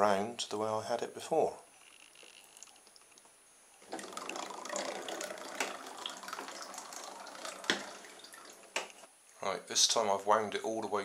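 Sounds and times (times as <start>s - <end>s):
paddle wheel splashing in water: 3.9s - 9.0s.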